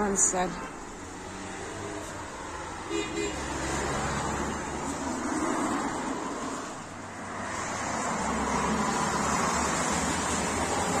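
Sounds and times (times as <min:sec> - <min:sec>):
street traffic: 0:00.0 - 0:11.0.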